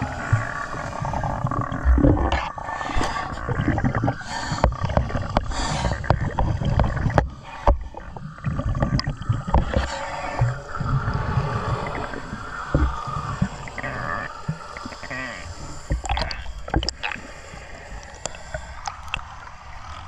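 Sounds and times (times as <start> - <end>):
water gurgling and sloshing: 0.0 - 20.0
low rumble: 6.1 - 17.2.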